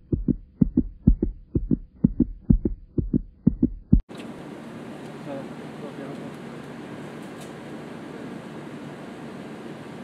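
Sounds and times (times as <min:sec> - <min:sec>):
heartbeat thumps: 0:00.0 - 0:04.0.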